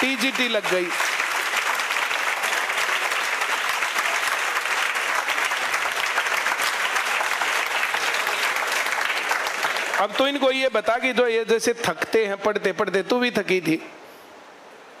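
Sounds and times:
audience clapping: 0.0s - 11.1s.

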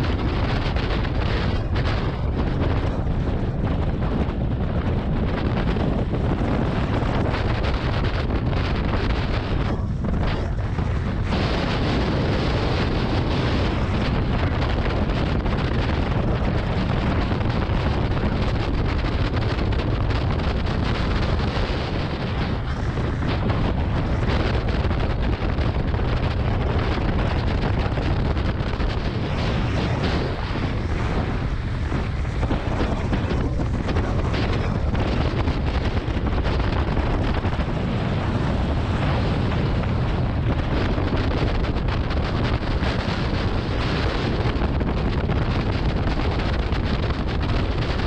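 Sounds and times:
wind rushing on microphone: 0.0s - 48.0s
sled runners scraping over snow: 20.5s - 46.6s.

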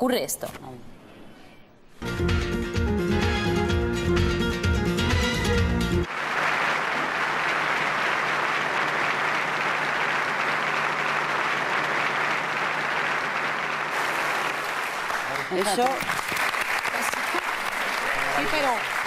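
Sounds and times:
audience applauding: 6.0s - 19.0s.

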